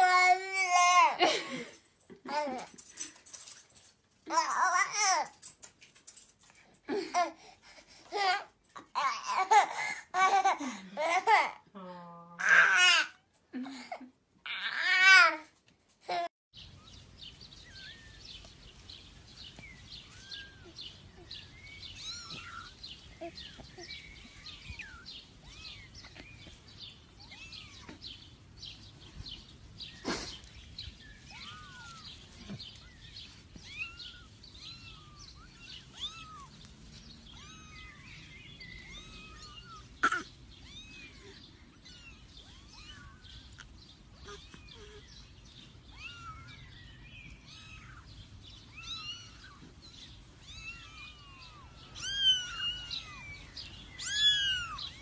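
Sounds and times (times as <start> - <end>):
kittens mewing: 19.5 - 28.8, 29.9 - 55.0.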